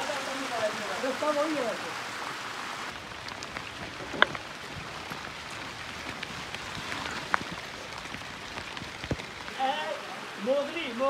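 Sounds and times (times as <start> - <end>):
steady watery hiss: 0.0 - 11.0.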